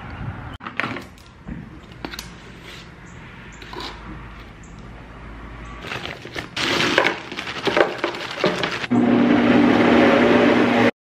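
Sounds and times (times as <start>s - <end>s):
blender crunching and rattling: 5.8s - 8.9s
blender motor hum: 7.7s - 10.9s.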